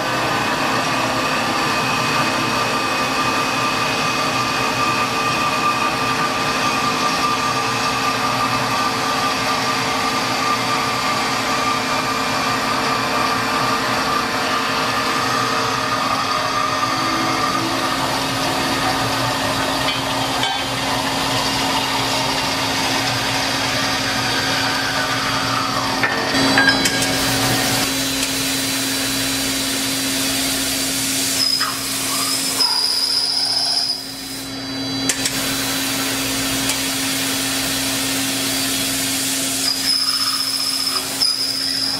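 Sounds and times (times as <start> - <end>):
band saw cutting steel: 0.3 - 41.9
high whistle: 31.3 - 34.5, 39.6 - 41.9.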